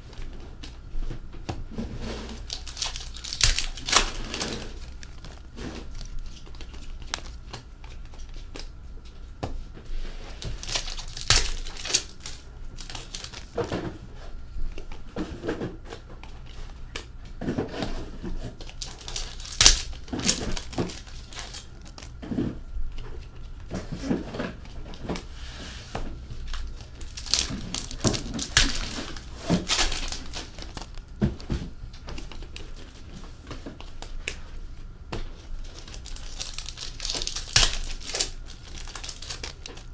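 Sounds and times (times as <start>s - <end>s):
wrappers tearing and crinkling: 2.0s - 8.8s, 10.2s - 13.8s, 17.8s - 22.5s, 26.4s - 33.1s, 35.4s - 39.9s.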